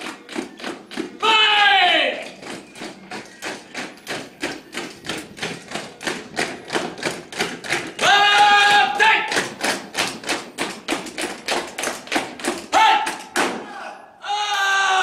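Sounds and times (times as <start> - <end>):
boots marching on stone paving: 0.0 - 13.6
person shouting drill command: 1.2 - 2.2, 8.0 - 9.4, 12.7 - 15.0.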